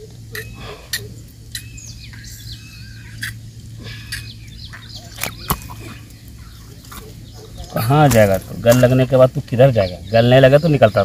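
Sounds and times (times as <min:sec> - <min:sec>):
small birds chirping: 0:00.0 - 0:11.0
steady low hum: 0:00.0 - 0:11.0.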